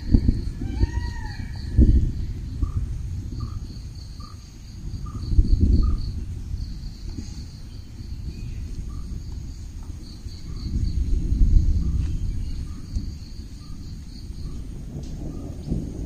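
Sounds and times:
low rumble gusts: 0.0s - 16.0s.

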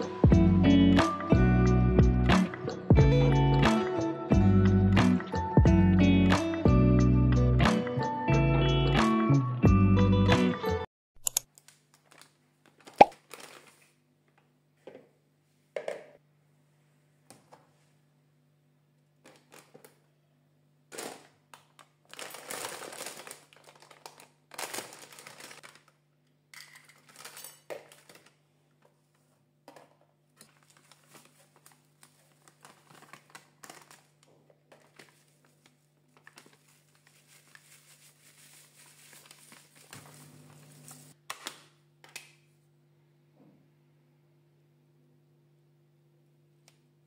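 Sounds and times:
plastic bag crinkling: 11.8s - 14.0s, 20.9s - 26.0s, 26.6s - 28.4s, 30.4s - 41.2s.

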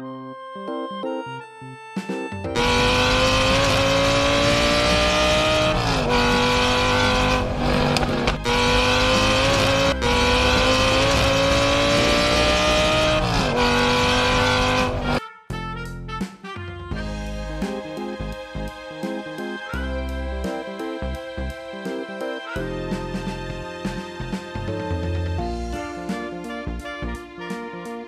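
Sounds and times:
racing car engine at high revs: 2.6s - 15.2s.

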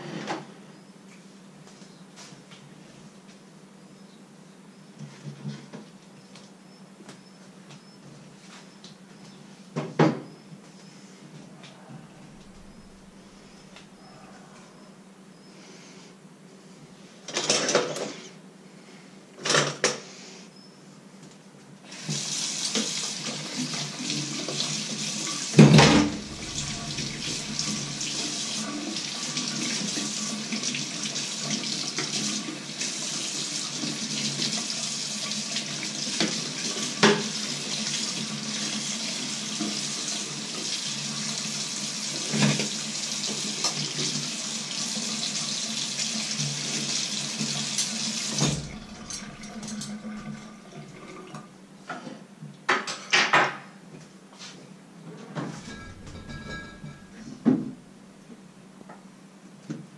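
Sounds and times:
items knocking in sink: 55.6s - 57.8s.

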